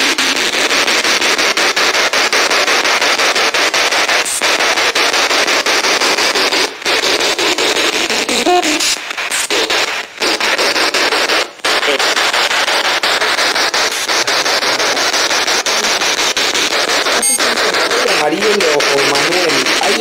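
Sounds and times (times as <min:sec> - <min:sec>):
radio static hiss: 0:00.0 - 0:20.0
rapid regular clicks: 0:00.0 - 0:20.0
broadcast tone: 0:06.9 - 0:20.0.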